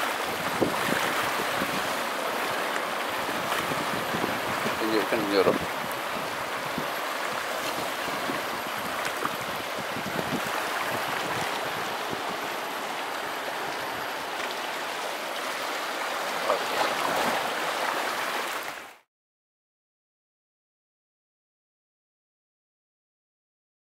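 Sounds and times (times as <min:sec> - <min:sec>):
surf washing among rocks: 0:00.0 - 0:19.1.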